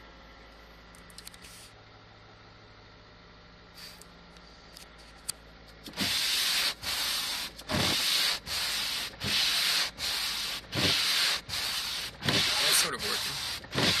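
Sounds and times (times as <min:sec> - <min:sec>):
wiper blades scraping frosty windshield: 0:05.9 - 0:14.0.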